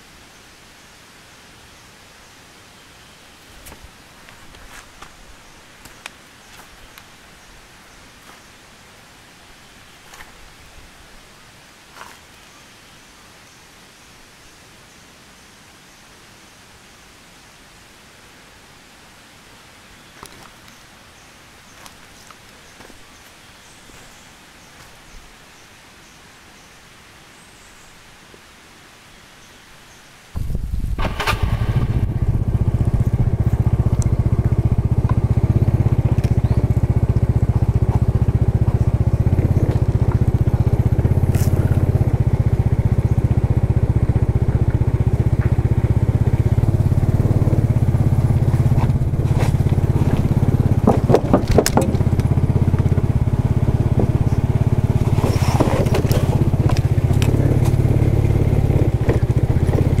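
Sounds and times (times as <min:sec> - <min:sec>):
wind rumble on microphone: 0:30.4 - 1:00.0
motor scooter engine running: 0:31.0 - 1:00.0
sharp knocks and rattles: 0:48.6 - 0:57.8.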